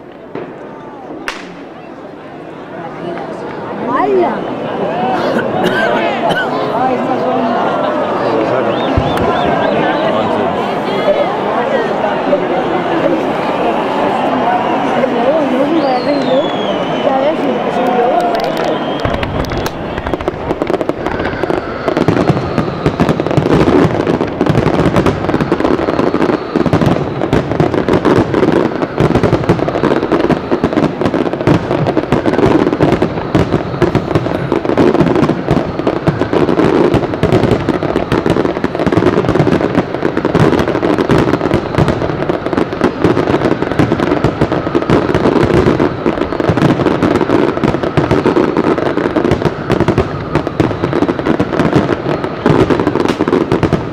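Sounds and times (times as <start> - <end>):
firework shells bursting: 0.0 - 1.8, 18.2 - 53.9.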